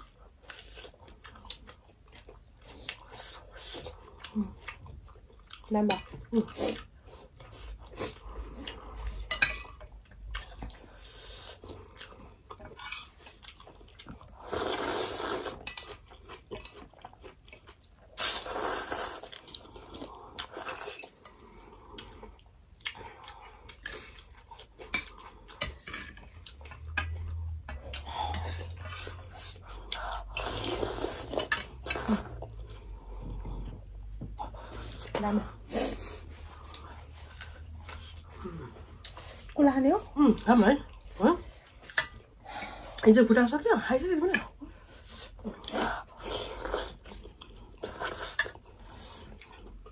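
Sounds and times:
close chewing: 0.0 - 43.1, 44.2 - 49.9
cutlery clinking on bowls: 9.2 - 9.9, 15.6 - 16.9, 24.9 - 27.8, 31.3 - 32.1
noodle slurping: 14.4 - 15.6, 18.2 - 19.4.

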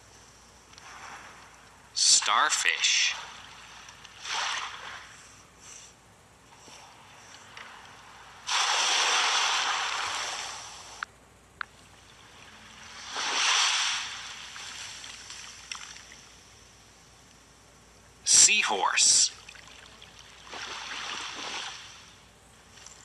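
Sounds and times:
ocean waves rushing: 2.0 - 5.1, 7.7 - 11.0, 12.5 - 15.1.

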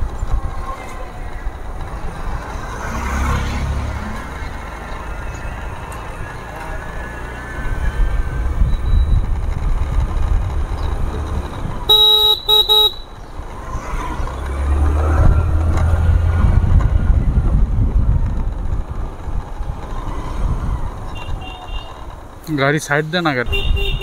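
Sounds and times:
wind on microphone: 0.0 - 11.9, 13.6 - 22.2, 23.5 - 24.0
motorcycle engine rumble: 0.0 - 24.0
vehicle horn honks: 11.9 - 13.2, 21.2 - 22.0, 23.5 - 24.0.

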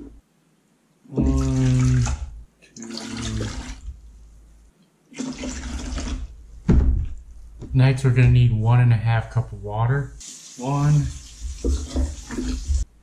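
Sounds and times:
liquid glugging into a glass cup: 1.2 - 3.8.

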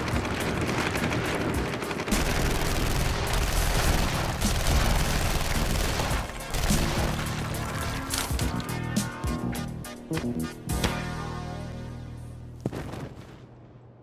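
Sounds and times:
rapid handgun shots: 0.0 - 8.1.

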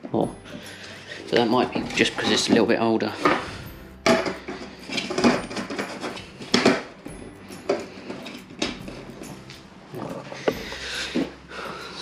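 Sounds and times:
plastic parts knocking: 0.0 - 9.3.

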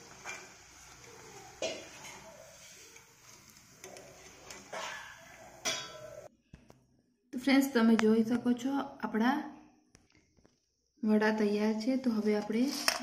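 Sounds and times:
frying in hot oil: 0.0 - 6.3, 10.0 - 13.0.

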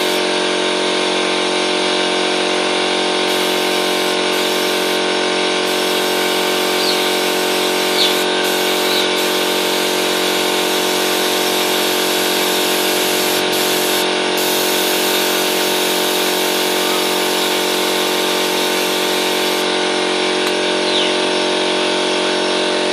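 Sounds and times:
spray gun hiss: 0.0 - 0.2, 3.3 - 19.9
air compressor motor hum: 0.0 - 22.9.

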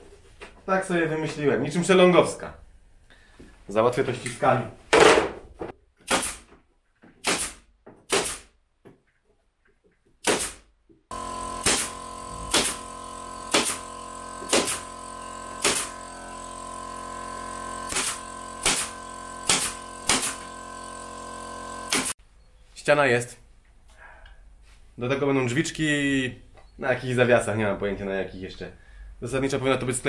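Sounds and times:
pneumatic nailer firing: 6.0 - 6.5, 7.2 - 8.5, 10.2 - 22.2
steady machine hum: 11.1 - 22.2.

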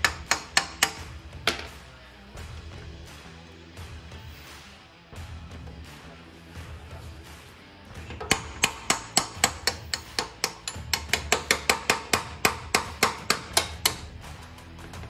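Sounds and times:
hammer striking steel: 0.0 - 1.8, 8.0 - 14.1.

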